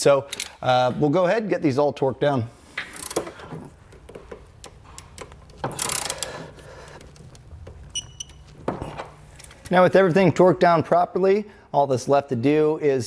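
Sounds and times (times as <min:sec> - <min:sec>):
torque wrench ratcheting clicks: 0:05.2 - 0:06.3.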